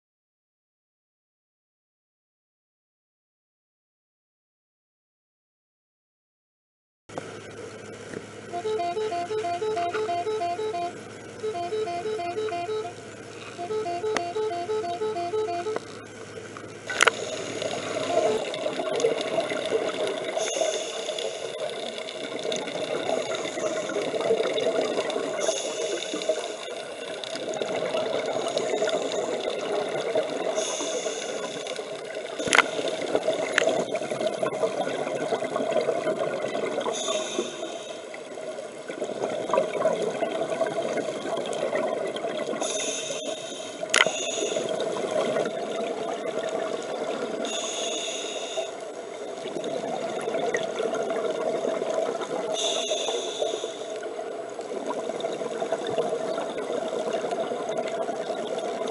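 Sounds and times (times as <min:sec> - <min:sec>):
muffled underwater water noise: 0:07.1 - 0:58.9
bursts of hiss: 0:20.4 - 0:21.7, 0:25.4 - 0:27.0, 0:30.5 - 0:33.1, 0:42.6 - 0:44.7, 0:47.4 - 0:48.8, 0:52.6 - 0:54.0
sharp clicks: 0:43.9 - 0:44.7.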